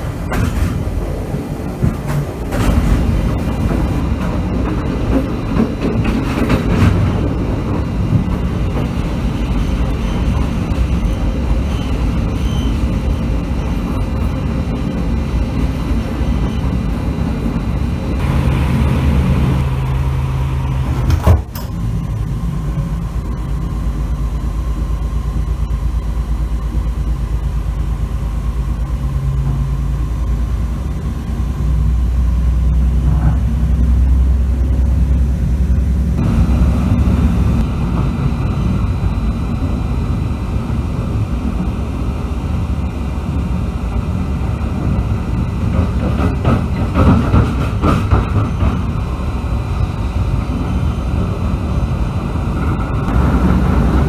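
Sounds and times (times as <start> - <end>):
wheels clattering over rail joints: 0.0 - 23.6, 42.8 - 54.0
diesel locomotive rumble: 0.0 - 54.0.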